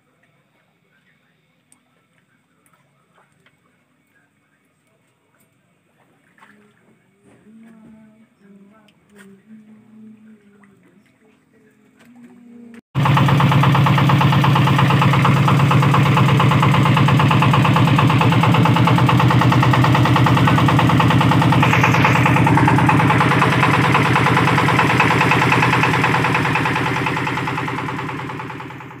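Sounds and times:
small boat engine running: 12.1s - 29.0s.

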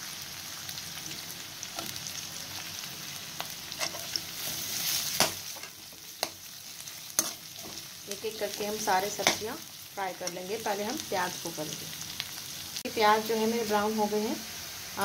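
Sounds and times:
onions sizzling in hot oil: 0.0s - 15.0s.

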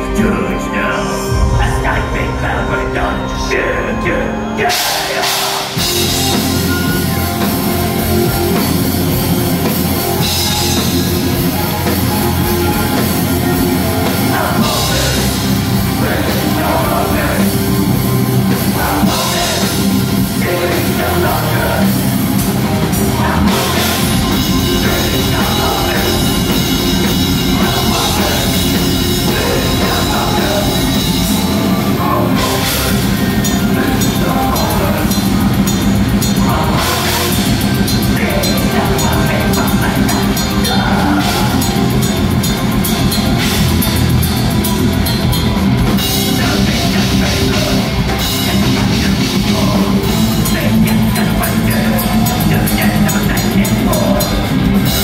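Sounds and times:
driving drum kit: 0.0s - 55.0s
heavy guitars: 0.0s - 55.0s
metal band playing live: 0.0s - 55.0s.

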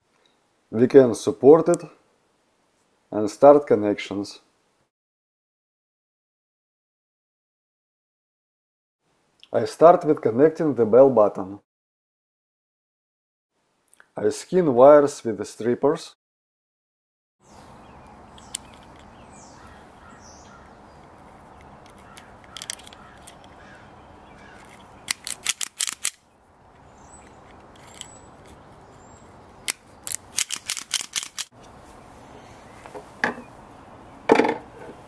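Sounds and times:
steady low hiss: 0.0s - 4.8s
wire strippers clicking and snipping: 18.4s - 19.1s, 21.6s - 23.6s, 24.4s - 26.2s, 27.2s - 28.8s, 29.6s - 31.5s.

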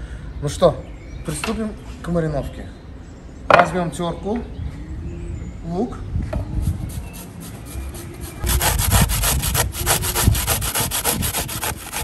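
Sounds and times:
onion grated on metal grater: 7.0s - 12.0s.

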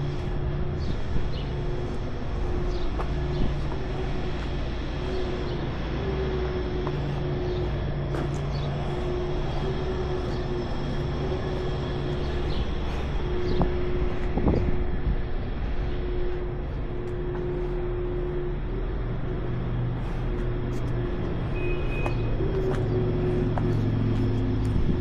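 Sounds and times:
diesel truck engine idling: 0.0s - 25.0s.

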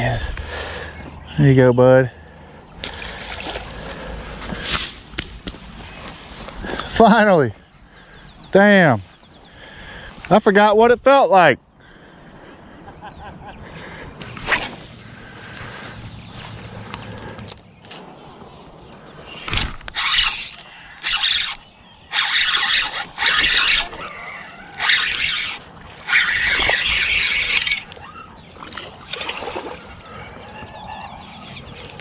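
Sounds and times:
high insect buzz: 0.0s - 10.5s, 11.4s - 32.0s
fish thrashing and splashing: 2.8s - 4.0s, 26.1s - 30.1s.

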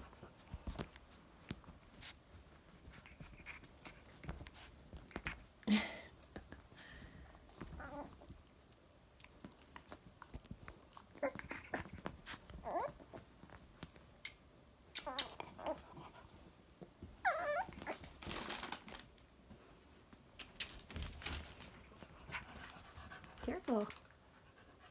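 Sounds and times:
scuffling on a bedspread: 0.0s - 5.5s, 6.2s - 8.5s, 9.3s - 14.2s
puppy whimpering yips: 12.6s - 13.0s, 17.2s - 18.0s.

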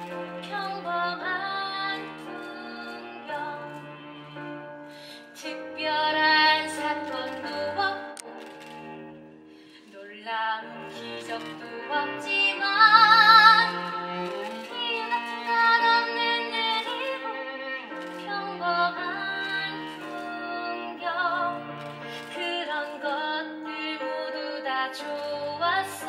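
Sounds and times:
instrumental accompaniment: 0.0s - 26.0s
woman singing ballad: 0.4s - 3.7s, 5.3s - 8.2s, 9.9s - 17.4s, 22.2s - 26.0s.

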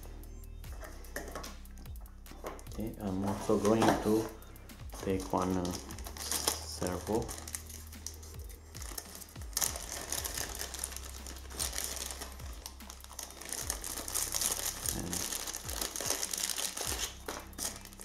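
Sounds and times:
plastic bag crinkling: 5.0s - 18.0s.

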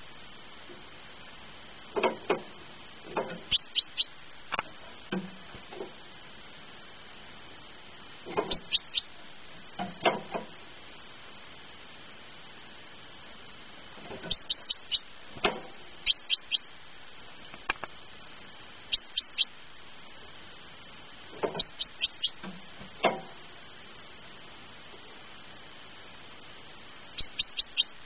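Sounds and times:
bird singing falling notes: 3.5s - 4.2s, 8.4s - 9.1s, 14.2s - 15.1s, 21.4s - 22.5s, 27.2s - 28.0s.

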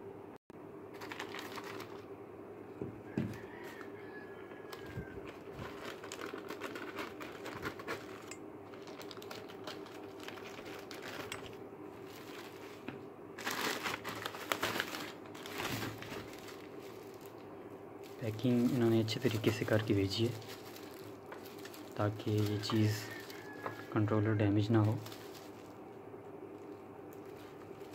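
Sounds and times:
plastic mailer and bubble wrap crinkling: 0.9s - 2.1s, 3.3s - 27.9s
scissors cutting plastic: 4.8s - 11.6s.

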